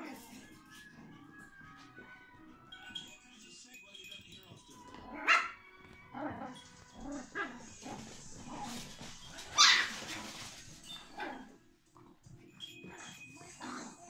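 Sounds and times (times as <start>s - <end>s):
puppies yapping: 5.1s - 11.5s.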